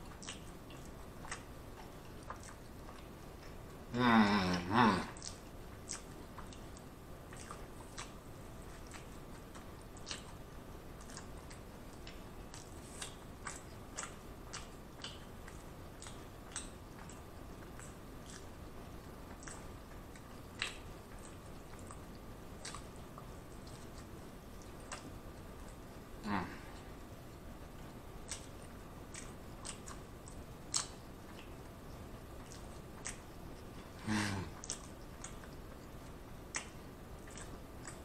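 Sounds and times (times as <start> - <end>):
person chewing wet smacks: 0.0 - 38.0.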